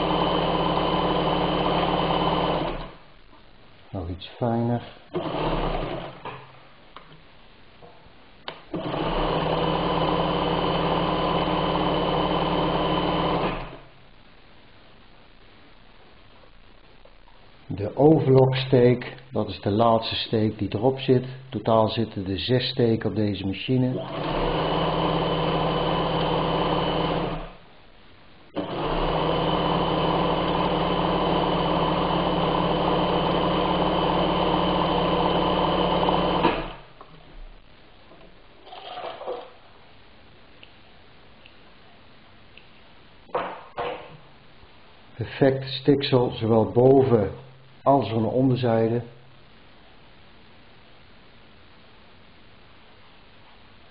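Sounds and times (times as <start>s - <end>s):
sewing machine running: 0.0s - 3.0s, 5.1s - 6.4s, 8.7s - 13.8s, 24.0s - 27.6s, 28.6s - 36.8s.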